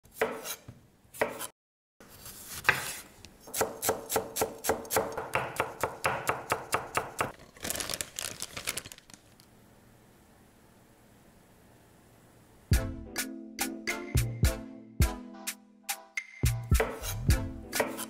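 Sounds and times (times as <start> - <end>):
knife chopping on wooden board: 0.1 - 1.5, 3.5 - 7.3, 16.8 - 17.2, 17.8 - 18.0.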